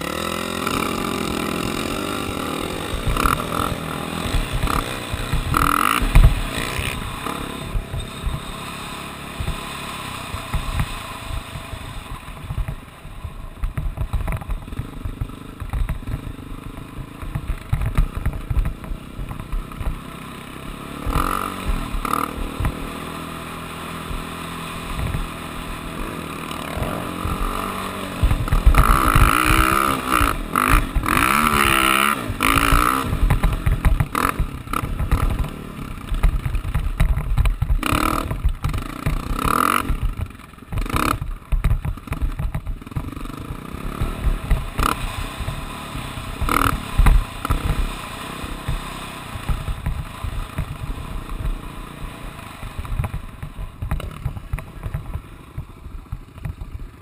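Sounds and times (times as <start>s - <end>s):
knocks over rough sand: 0.0s - 8.6s, 24.0s - 57.0s
off-road vehicle engine revving: 0.0s - 12.2s, 19.3s - 36.5s, 37.8s - 41.2s, 42.9s - 53.2s.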